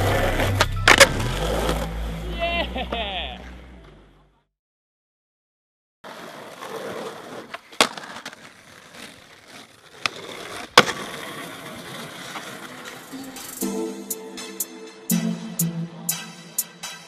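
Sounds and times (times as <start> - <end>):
skateboard wheels rolling on concrete: 0.0 - 4.1, 6.0 - 13.6
skateboard clacks: 6.1 - 13.5.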